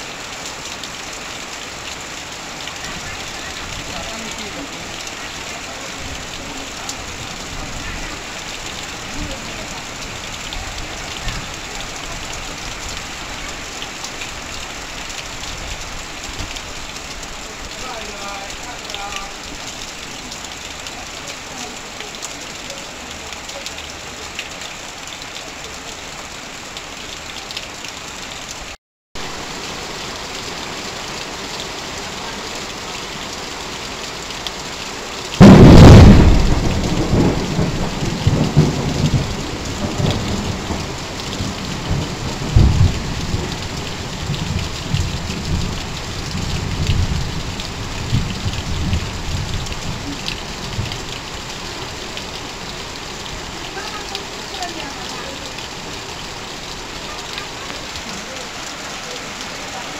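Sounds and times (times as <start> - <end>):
rain on metal sheeting: 0.0 - 59.9
water pouring from roof: 0.0 - 59.9
thunder rumbling: 35.4 - 50.9.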